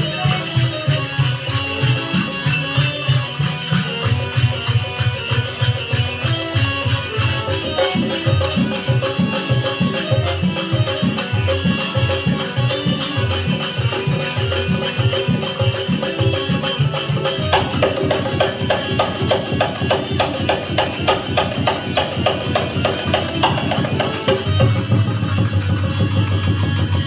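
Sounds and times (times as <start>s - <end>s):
dholak drum: 0.0s - 27.0s
hand cymbals jingling: 5.7s - 26.3s.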